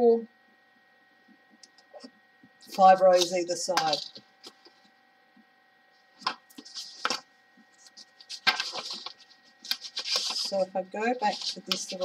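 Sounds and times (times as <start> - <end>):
faint steady hum: 0.0 - 12.0
paper rustling: 2.7 - 4.8, 6.2 - 12.0.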